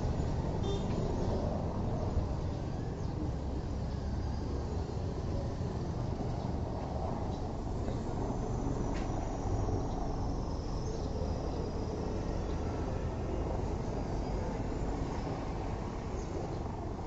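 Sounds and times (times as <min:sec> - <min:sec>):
distant aircraft rumble: 0:00.0 - 0:17.0
faint high turbine whine: 0:00.0 - 0:17.0.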